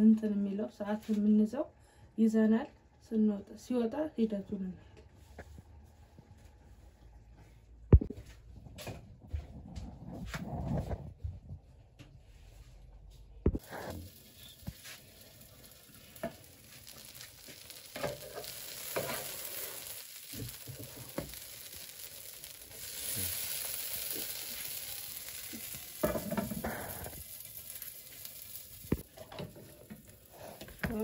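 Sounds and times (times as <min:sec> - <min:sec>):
pizza sizzling in skillet: 0:13.5 - 0:31.0.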